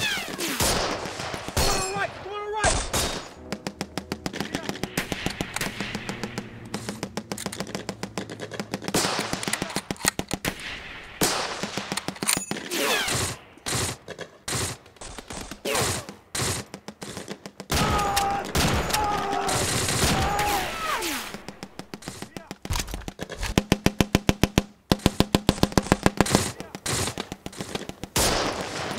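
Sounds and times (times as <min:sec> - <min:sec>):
machine-gun fire: 0:00.0 - 0:22.3, 0:23.0 - 0:28.9
man yelling: 0:01.8 - 0:02.8, 0:17.8 - 0:21.0.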